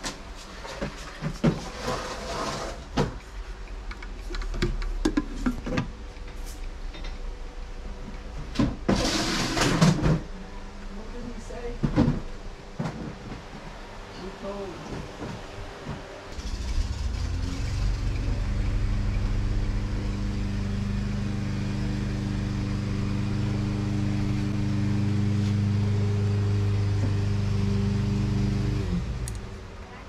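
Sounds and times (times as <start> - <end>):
electric fan humming: 9.3 - 30.0.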